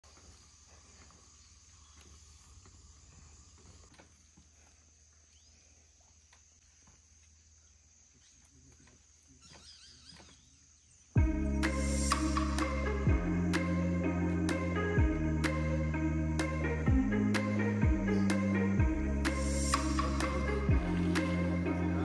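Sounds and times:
footsteps on wooden steps: 0:00.0 - 0:04.8.

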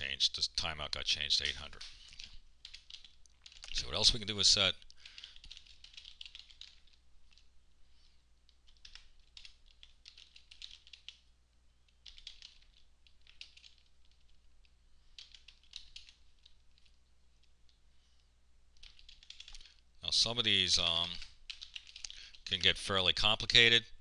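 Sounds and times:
keyboard typing: 0:01.4 - 0:04.1, 0:05.0 - 0:07.5, 0:08.5 - 0:11.3, 0:11.9 - 0:14.5, 0:15.1 - 0:17.8, 0:18.7 - 0:19.8, 0:21.0 - 0:22.7.

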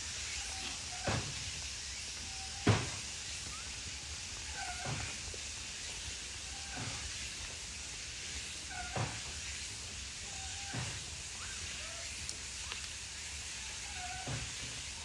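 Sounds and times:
outdoor hiss: 0:00.0 - 0:15.0
monkey cooing calls: 0:04.4 - 0:05.2, 0:10.2 - 0:12.9, 0:13.5 - 0:14.4.

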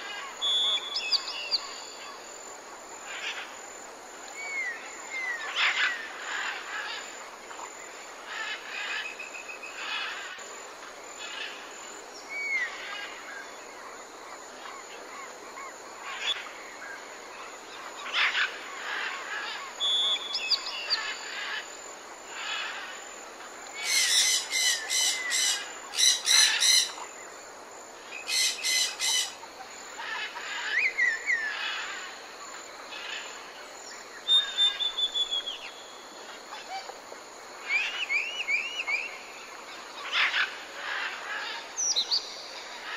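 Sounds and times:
birds chirping and trilling: 0:00.0 - 0:02.3, 0:04.4 - 0:10.5, 0:11.1 - 0:27.4, 0:28.0 - 0:36.9, 0:37.6 - 0:42.9
bird chattering calls: 0:28.3 - 0:29.4.

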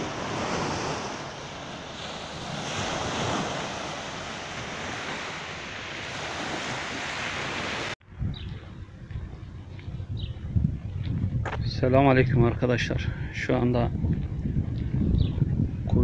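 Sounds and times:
sea waves washing onto shore: 0:00.0 - 0:08.0
wind on microphone: 0:00.0 - 0:16.0.

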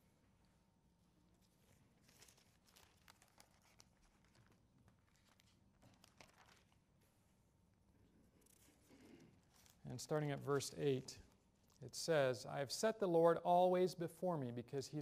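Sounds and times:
paper rustling: 0:01.4 - 0:07.2, 0:08.4 - 0:09.8.

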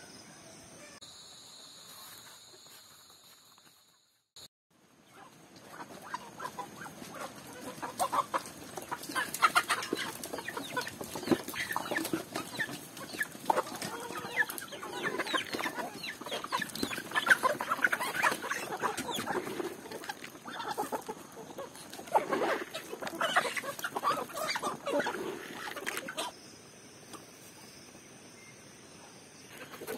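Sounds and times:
chickens clucking and chirping: 0:05.0 - 0:28.0, 0:28.8 - 0:29.9.

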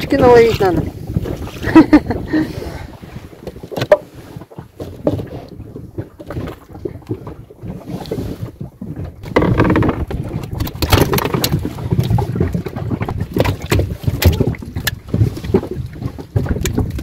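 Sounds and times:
wind on microphone: 0:00.0 - 0:17.0
fish handling rustling and knocks: 0:03.4 - 0:07.4, 0:09.0 - 0:17.0.

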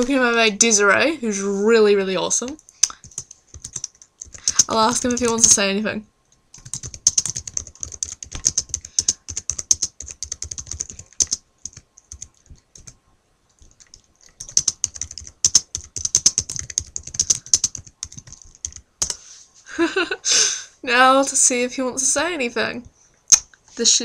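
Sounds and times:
typing on a computer keyboard: 0:02.4 - 0:05.6, 0:06.5 - 0:13.0, 0:13.6 - 0:19.2.

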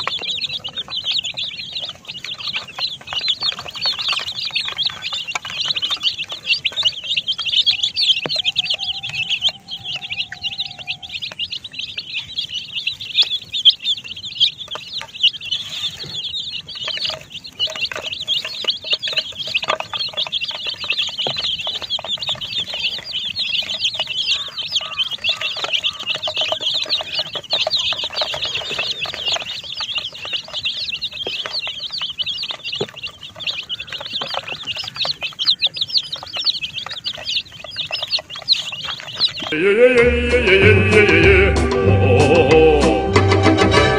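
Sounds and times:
baby chicks peeping: 0:00.0 - 0:43.9.

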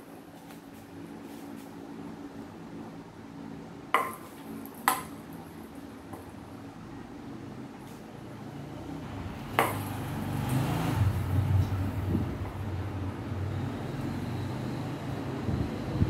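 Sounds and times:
ping-pong ball taps: 0:04.0 - 0:05.2, 0:09.6 - 0:09.9
steady low rumble: 0:11.0 - 0:13.4.

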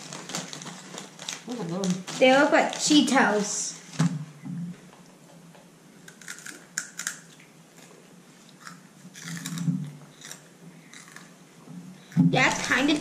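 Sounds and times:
crunchy snack being chewed: 0:06.0 - 0:11.4.

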